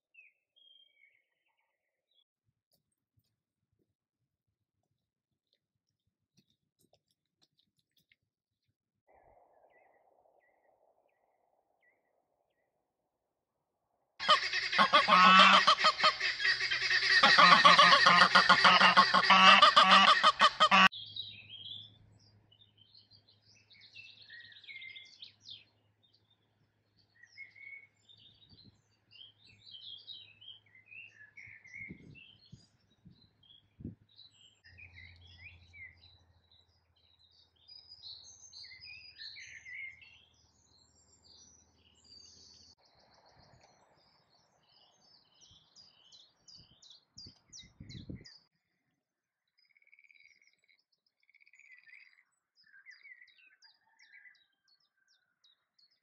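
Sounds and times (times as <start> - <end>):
songbird chirps: 0.0 - 3.3, 14.2 - 56.0
goose honking: 14.2 - 20.9.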